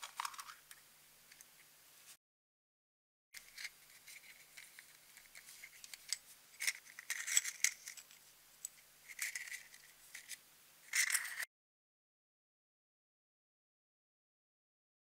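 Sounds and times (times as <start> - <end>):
plastic parts clicking: 0.0 - 1.5, 3.4 - 11.4.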